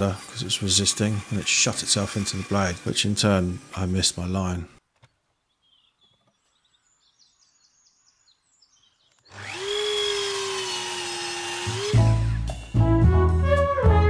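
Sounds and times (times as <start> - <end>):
power tool motor whining: 0.0 - 4.4, 9.1 - 12.8.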